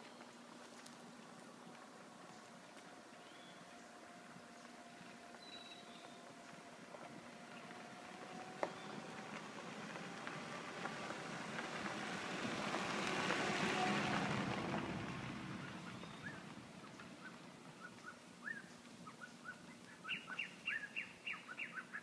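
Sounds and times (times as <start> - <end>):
birds chirping: 1.4 - 6.7, 8.6 - 9.2, 15.6 - 22.0.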